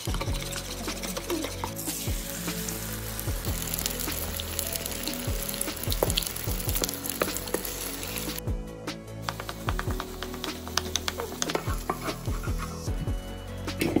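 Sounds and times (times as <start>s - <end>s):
eggs sizzling in frying pan: 0.0s - 8.4s.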